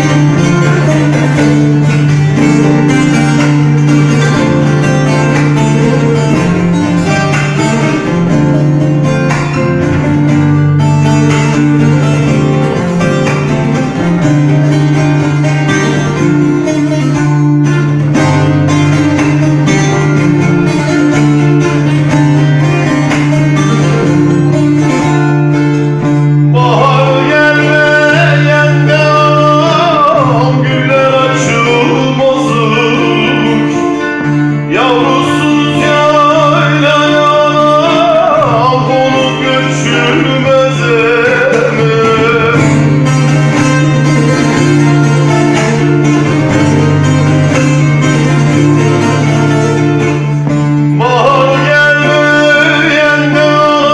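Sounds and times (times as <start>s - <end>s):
man singing: 0.0s - 10.0s, 26.3s - 47.4s, 50.7s - 53.9s
plucked long-necked lute: 0.0s - 53.9s.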